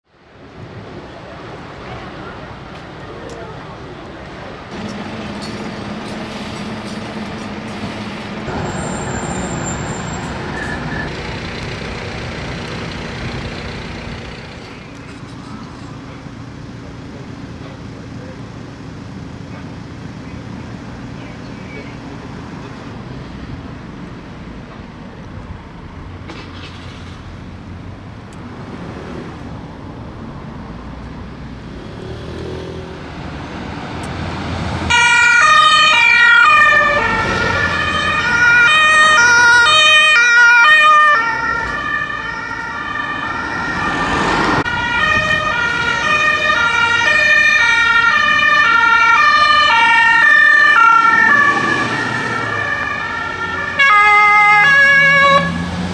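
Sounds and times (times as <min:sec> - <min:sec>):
ambulance two-tone siren: 0:34.9 - 0:55.7.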